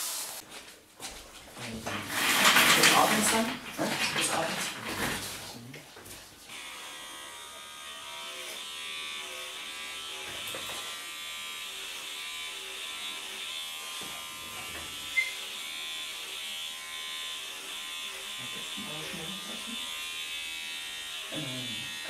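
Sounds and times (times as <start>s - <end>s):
electric hair clipper buzzing: 6.5s - 22.0s.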